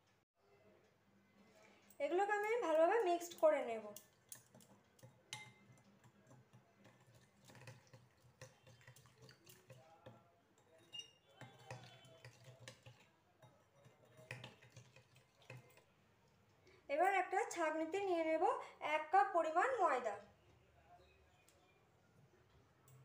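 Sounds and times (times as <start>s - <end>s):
metal spoon clinking glass bowl: 2.8s - 15.9s.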